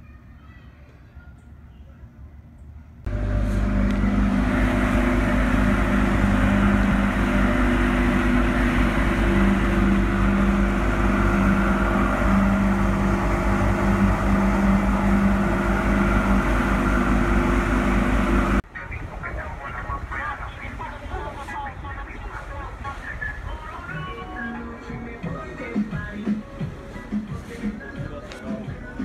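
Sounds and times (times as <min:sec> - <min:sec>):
motorboat engine drone: 0:03.1 - 0:29.0
rushing water: 0:03.6 - 0:25.1.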